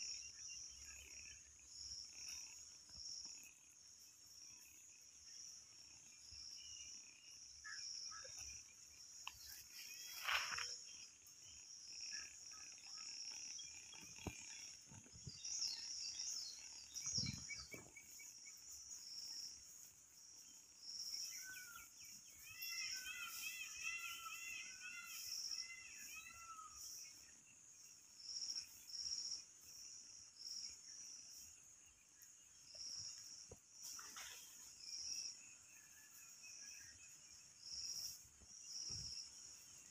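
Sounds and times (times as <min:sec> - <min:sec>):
insects droning high-pitched: 0:00.0 - 0:39.9
warbling bird song: 0:00.0 - 0:39.9
bird chirps: 0:04.5 - 0:29.5.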